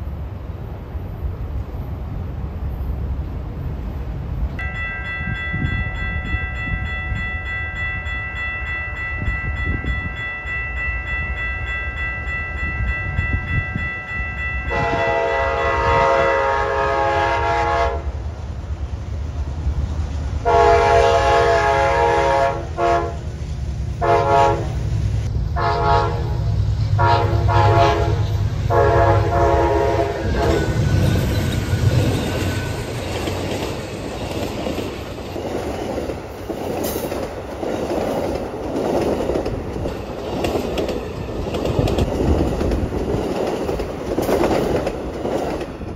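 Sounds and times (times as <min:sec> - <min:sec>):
train rumbling past: 0:00.0 - 0:45.9
high steady ringing tone: 0:04.6 - 0:15.0
locomotive horn blasts: 0:14.6 - 0:18.2, 0:20.4 - 0:23.3, 0:24.0 - 0:24.8, 0:25.6 - 0:30.9
wheels clicking over rail joints: 0:30.4 - 0:45.9.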